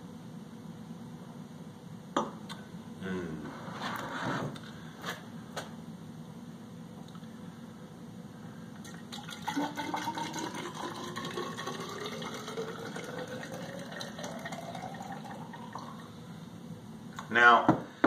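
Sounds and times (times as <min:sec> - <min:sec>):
liquid pouring into a jar: 0:08.8 - 0:16.1.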